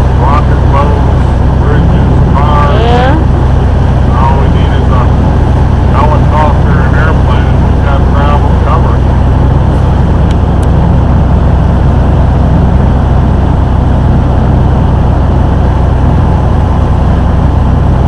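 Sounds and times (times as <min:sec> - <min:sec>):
boat engine droning: 0:00.0 - 0:18.0
water rushing along hull: 0:00.0 - 0:18.0.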